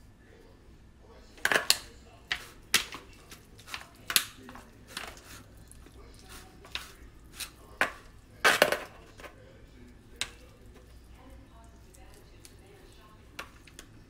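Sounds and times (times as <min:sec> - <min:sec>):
knife scraping foil pan: 0:06.3 - 0:07.6.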